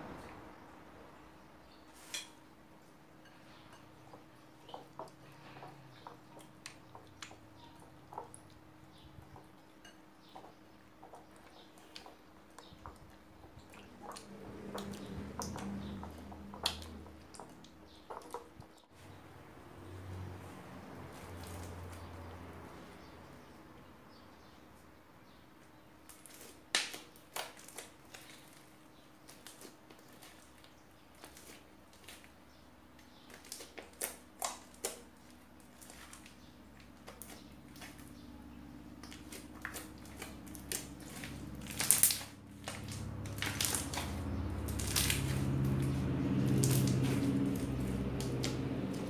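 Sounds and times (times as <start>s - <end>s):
slime squelching: 3.5s - 18.9s, 26.1s - 49.0s.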